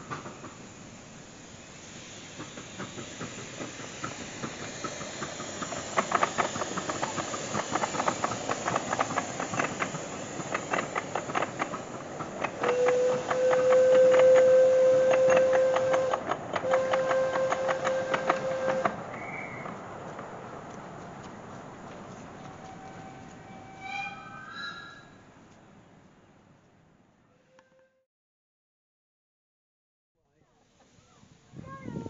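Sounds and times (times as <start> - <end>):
steam hissing: 0.0 - 19.8
wheels clicking over rail joints: 0.0 - 23.8
steam train whistle: 12.6 - 19.7.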